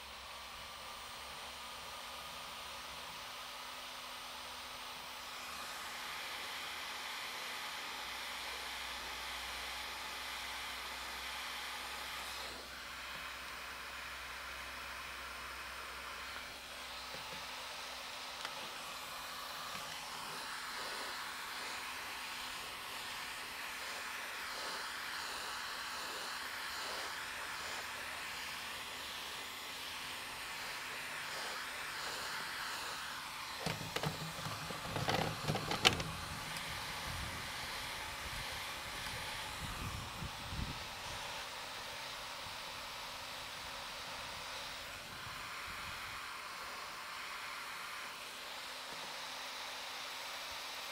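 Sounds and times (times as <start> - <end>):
rc car engine whining: 25.3 - 37.4.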